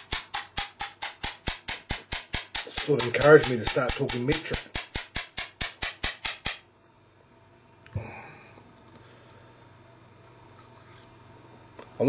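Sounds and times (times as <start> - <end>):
rapid mechanical clicking: 0.0 - 6.6.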